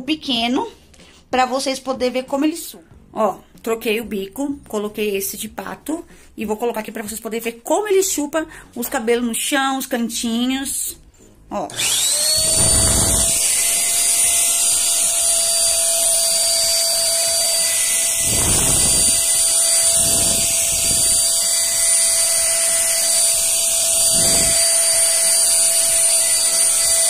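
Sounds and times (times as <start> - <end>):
handheld vacuum cleaner whining: 11.7 - 27.0.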